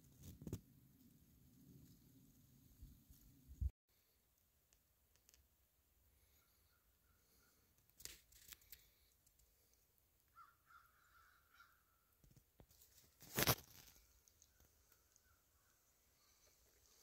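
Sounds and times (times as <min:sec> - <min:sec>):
distant bird call: 0:10.3 - 0:12.1.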